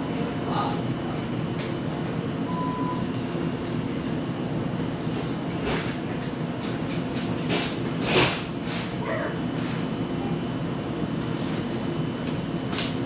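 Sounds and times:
short beep: 2.5s - 3.0s.

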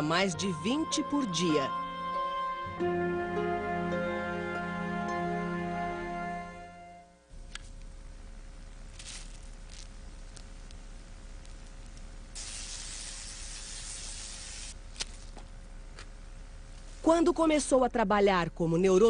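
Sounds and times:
electrical hiss: 7.3s - 15.6s.

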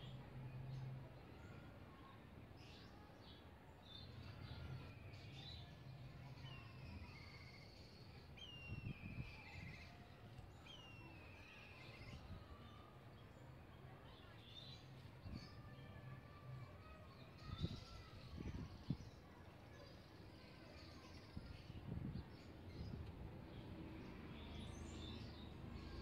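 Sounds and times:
faint bird chirps: 4.0s - 23.0s.

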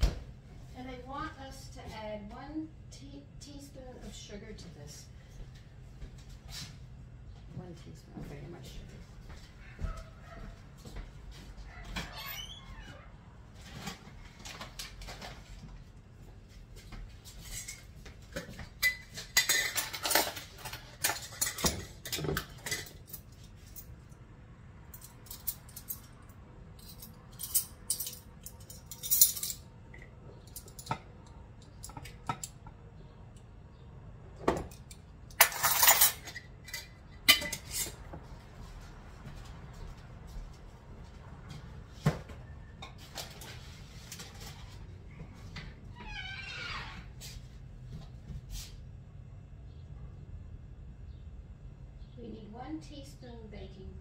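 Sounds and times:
metal spoons jangling: 26.8s - 29.6s.

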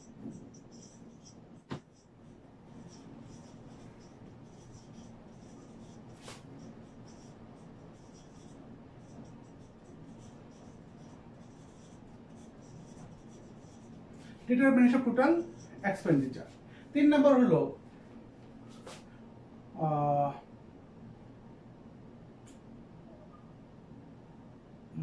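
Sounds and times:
marker scratching on whiteboard: 0.0s - 16.6s
low room hum: 0.0s - 25.0s.

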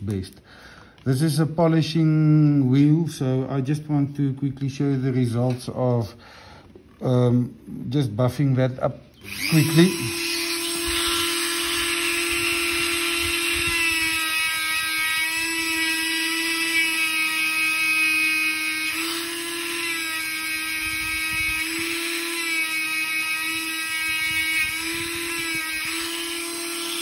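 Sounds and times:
rotary tool motor whine: 9.2s - 27.0s.

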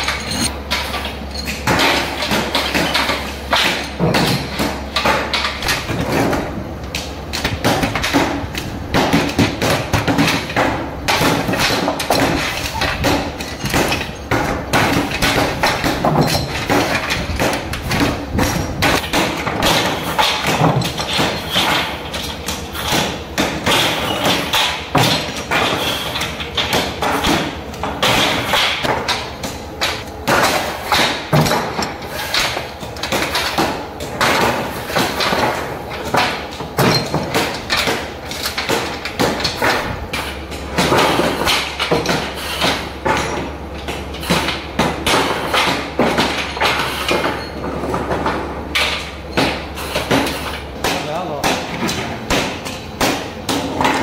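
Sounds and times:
metal parts clattering: 0.0s - 4.4s, 11.3s - 19.1s.

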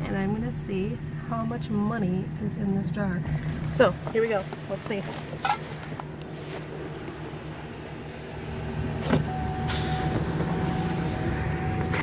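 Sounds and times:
low car hum: 0.0s - 12.0s
car door shutting: 8.9s - 10.9s.

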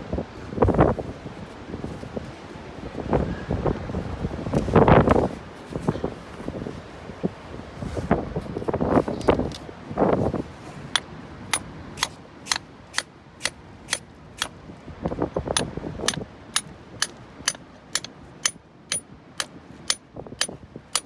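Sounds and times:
hammer striking steel chisel: 11.0s - 14.5s, 15.6s - 21.0s.

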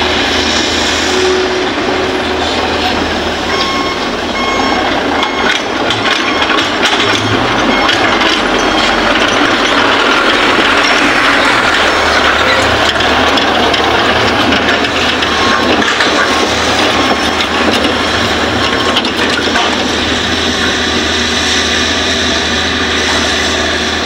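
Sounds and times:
excavator engine drone: 0.0s - 24.0s
soil and stones rattling: 5.6s - 20.8s.

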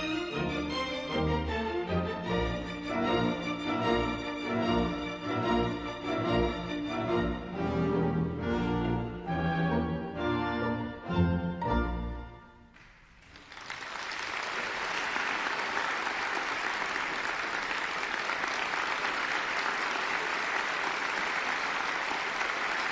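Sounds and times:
audience applause: 12.8s - 22.9s.

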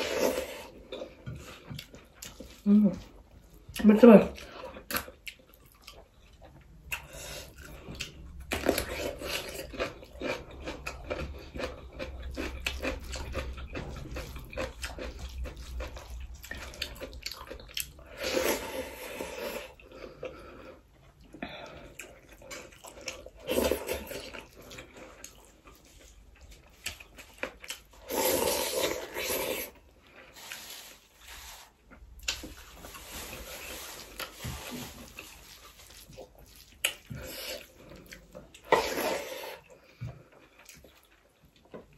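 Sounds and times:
wet chewing and lip-smacking: 4.7s - 18.1s, 20.9s - 28.0s, 35.0s - 38.8s.

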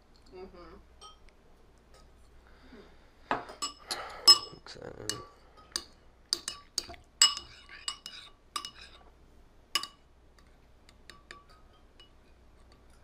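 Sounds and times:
spoon clinking ceramic bowl: 1.0s - 1.3s, 3.3s - 9.0s, 9.8s - 10.1s, 10.9s - 13.0s.

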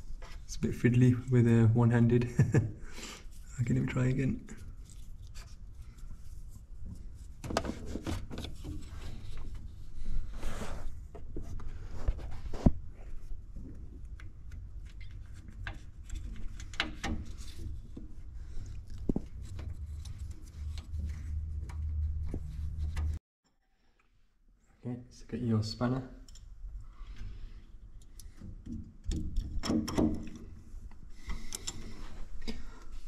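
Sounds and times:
handling clicks and scrapes: 4.6s - 23.2s.

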